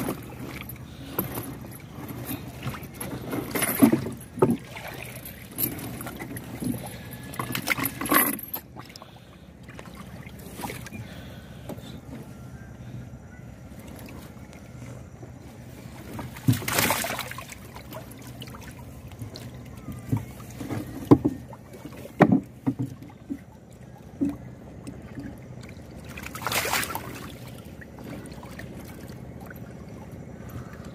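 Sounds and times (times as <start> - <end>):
water splashing: 1.7 - 8.0, 8.6 - 11.2, 15.7 - 30.8.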